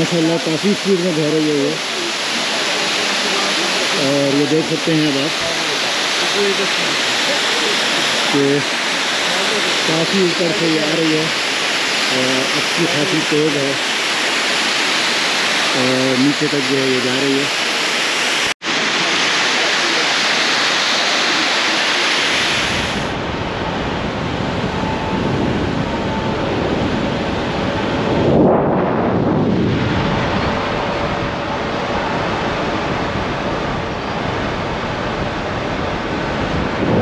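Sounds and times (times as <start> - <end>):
waterfall rushing: 0.0 - 23.2.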